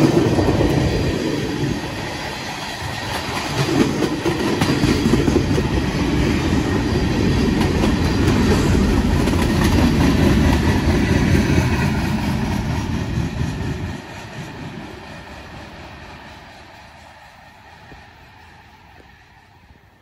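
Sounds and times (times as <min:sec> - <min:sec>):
freight train wheels rumbling: 0:00.0 - 0:20.0
wheels clicking over rail joints: 0:02.5 - 0:12.7.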